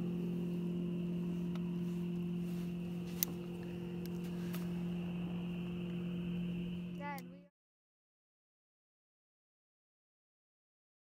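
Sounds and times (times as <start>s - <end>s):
boat motor humming: 0.0s - 7.5s.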